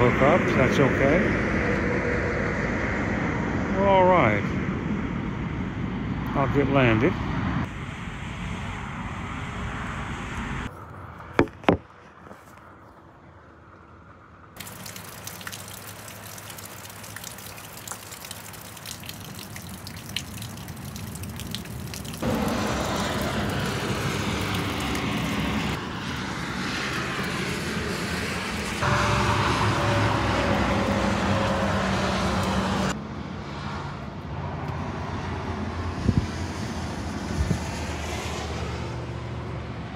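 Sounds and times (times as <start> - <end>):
rain falling: 14.6 - 25.8
water dripping off awning: 14.6 - 33.0.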